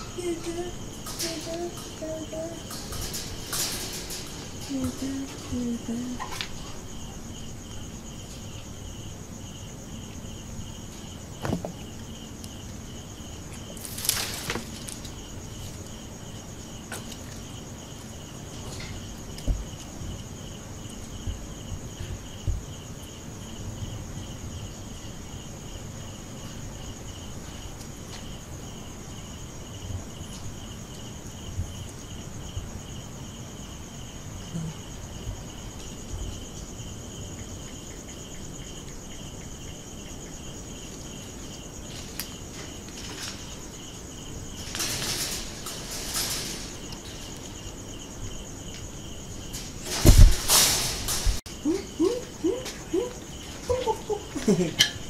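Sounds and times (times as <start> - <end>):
rustling: 0.0 - 9.3, 13.4 - 20.0, 41.0 - 51.5
crickets chirping: 0.0 - 55.0.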